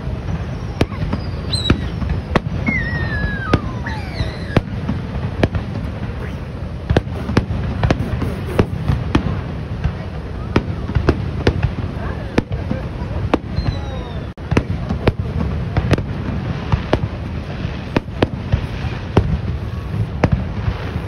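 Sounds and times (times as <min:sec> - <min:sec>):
falling firework whistle: 0:00.0 - 0:09.0, 0:13.3 - 0:14.4
firework shells bursting: 0:00.0 - 0:10.0.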